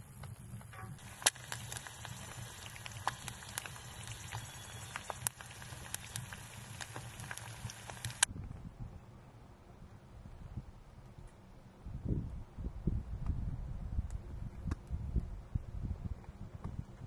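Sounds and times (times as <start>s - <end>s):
eggs sizzling in a pan: 0.0s - 8.3s
sharp popping: 0.0s - 8.3s.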